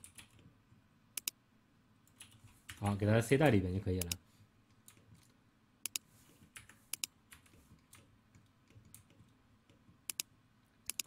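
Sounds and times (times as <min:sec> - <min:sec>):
computer mouse clicks: 0:01.2 - 0:01.4, 0:04.8 - 0:11.0.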